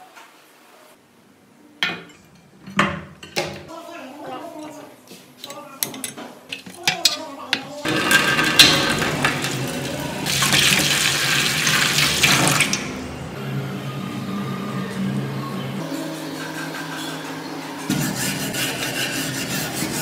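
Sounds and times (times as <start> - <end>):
water pouring into a plastic tray: 8.4 - 12.8.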